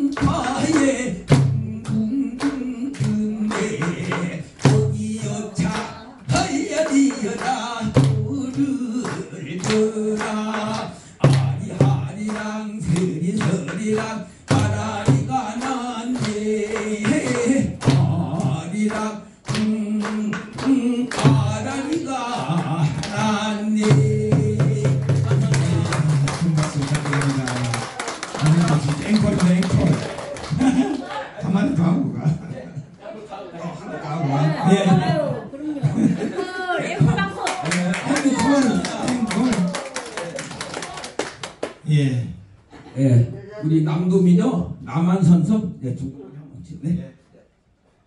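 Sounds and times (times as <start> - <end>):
man singing folk song: 0.0 - 26.3
barrel drum struck in rhythm: 0.0 - 26.7
listeners clapping: 15.6 - 24.0, 24.8 - 31.2, 37.0 - 41.8.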